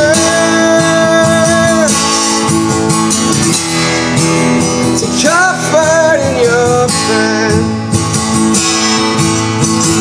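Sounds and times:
man singing: 0:00.0 - 0:02.9, 0:04.0 - 0:08.2
acoustic guitar strumming: 0:00.0 - 0:10.0.

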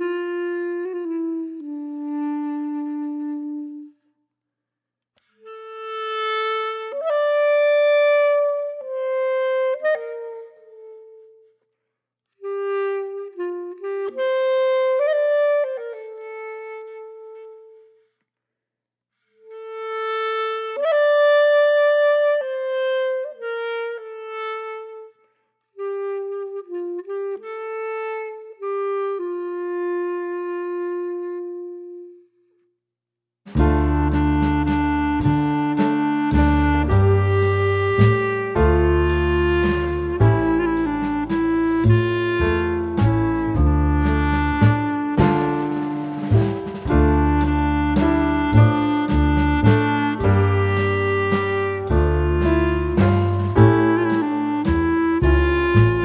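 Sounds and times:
slow solo melody: 0:33.6 - 0:56.0.

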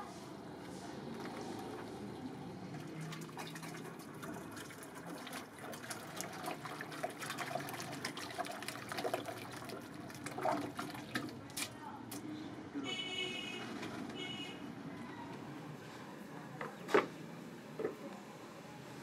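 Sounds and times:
small water splashes: 0:02.7 - 0:11.8
hand sloshing plaster in bucket: 0:03.1 - 0:11.7.

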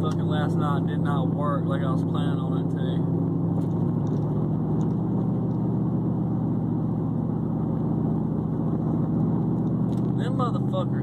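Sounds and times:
pickup truck engine drone: 0:00.0 - 0:11.0
tyre road noise: 0:00.0 - 0:11.0.

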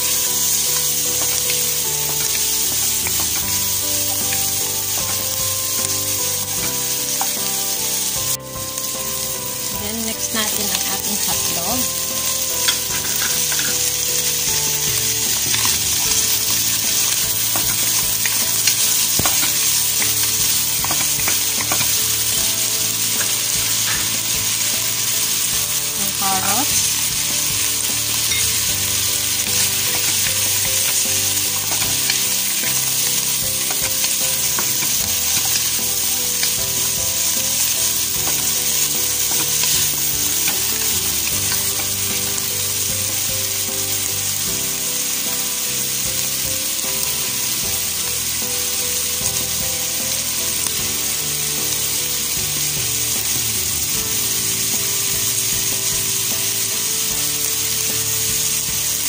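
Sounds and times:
wooden spatula stirring: 0:00.0 - 0:08.4, 0:09.2 - 0:43.6
food sizzling in pan: 0:00.0 - 0:59.0.

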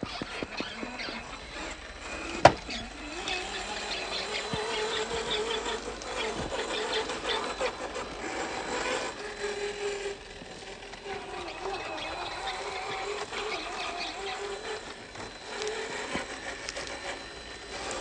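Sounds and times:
electric motor and gears whining: 0:00.0 - 0:18.0.

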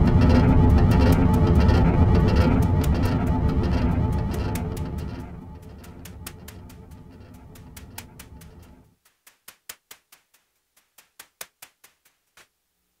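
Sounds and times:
low noisy electronic drone: 0:00.0 - 0:08.9.

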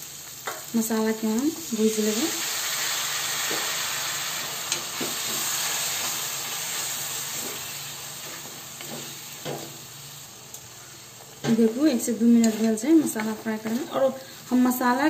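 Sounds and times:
masala sizzling in oil: 0:00.0 - 0:15.0
wooden spatula scraping pan: 0:12.4 - 0:14.8.

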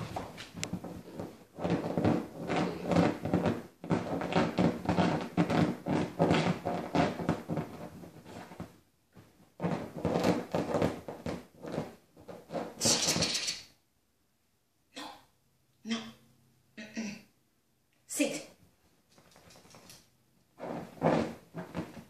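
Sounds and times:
scratching and thumps on cushion: 0:00.0 - 0:13.3, 0:19.2 - 0:22.0.

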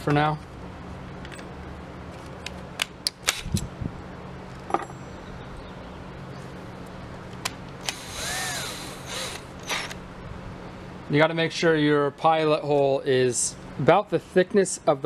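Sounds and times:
cordless drill whirring: 0:07.8 - 0:10.0.

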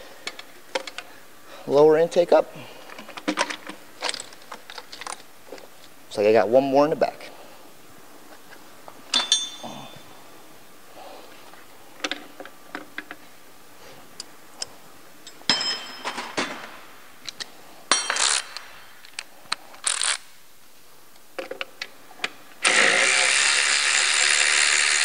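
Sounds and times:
metal tools clinking: 0:09.1 - 0:10.1, 0:17.9 - 0:18.6
cordless power ratchet running: 0:22.6 - 0:25.0.

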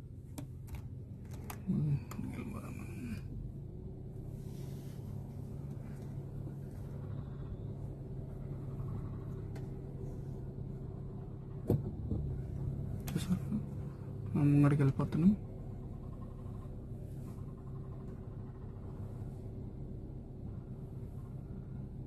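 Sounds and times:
car engine humming: 0:00.0 - 0:22.0.

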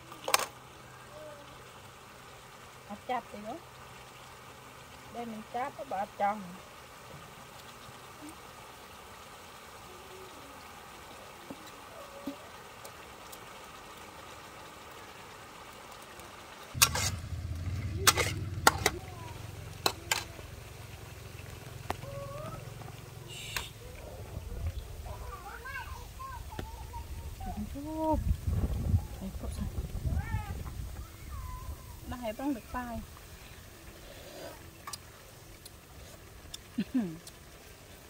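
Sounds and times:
food simmering in a wok: 0:00.0 - 0:38.0
low steady rumble: 0:16.8 - 0:33.9.

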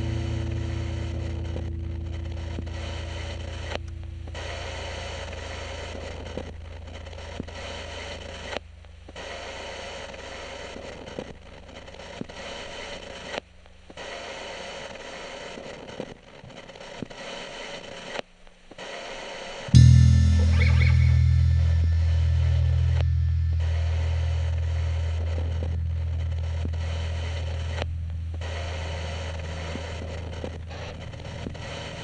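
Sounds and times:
low hum: 0:00.0 - 0:07.3, 0:19.7 - 0:32.0
static hiss with crackles: 0:00.0 - 0:19.8, 0:24.8 - 0:32.0.

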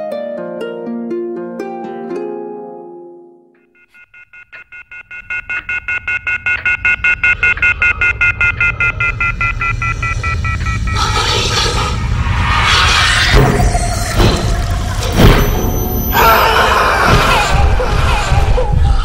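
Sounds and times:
pulsing high telephone tone: 0:03.7 - 0:12.0, 0:15.3 - 0:16.5
low hum: 0:05.2 - 0:16.2
rushing noise: 0:08.8 - 0:19.0.

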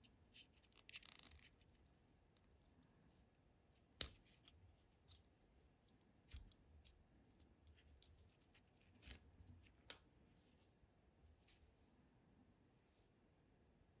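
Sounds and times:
metal buckle clicking: 0:05.1 - 0:07.0.

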